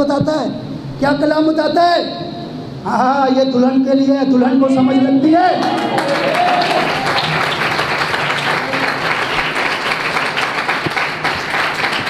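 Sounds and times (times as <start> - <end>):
congregation applauding: 5.6 - 12.0.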